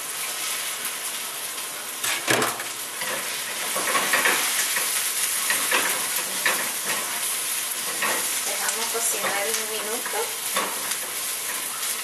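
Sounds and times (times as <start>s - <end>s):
mushrooms sizzling in oil: 0.0s - 12.0s
food clattering into pan: 2.1s - 7.2s
spatula scraping pan: 3.0s - 11.7s.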